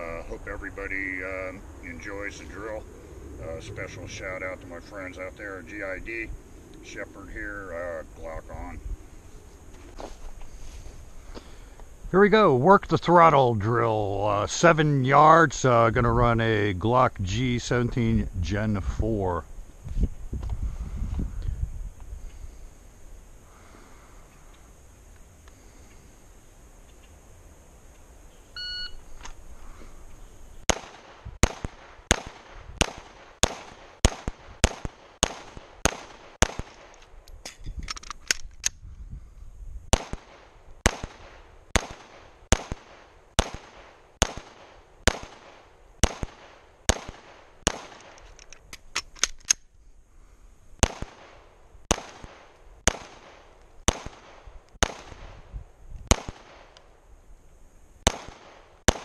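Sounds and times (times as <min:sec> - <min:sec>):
pistol shots: 0:30.7 - 0:37.0, 0:39.9 - 0:48.2, 0:50.8 - 0:55.4, 0:56.1 - 0:56.8, 0:58.0 - 0:59.0
pistol reload: 0:34.6 - 0:38.8, 0:45.1 - 0:49.7.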